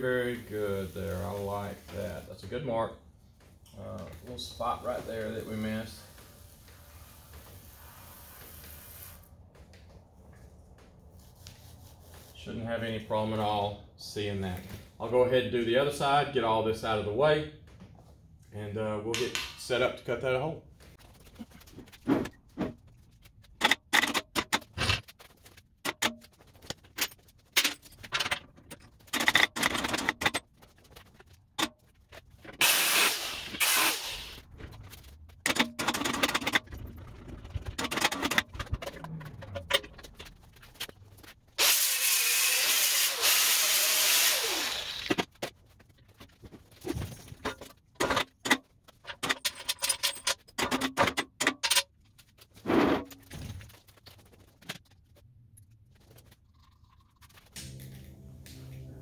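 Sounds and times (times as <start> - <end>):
steady hissing noise: 4.4 - 9.3.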